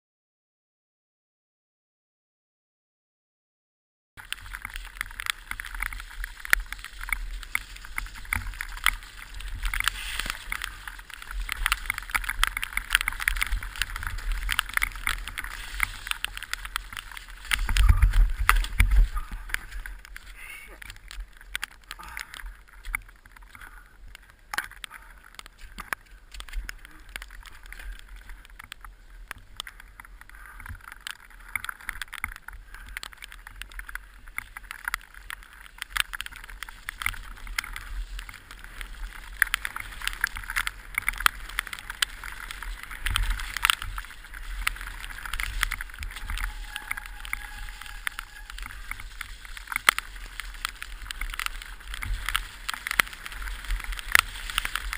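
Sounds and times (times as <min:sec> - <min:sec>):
bike frame and chain clattering: 0:04.2 - 0:23.8, 0:29.4 - 0:54.9
sharp knocks over roots and rocks: 0:04.2 - 0:23.8
tyres on wet ground: 0:04.2 - 0:54.9
wind on microphone: 0:05.6 - 0:20.5, 0:42.0 - 0:54.9.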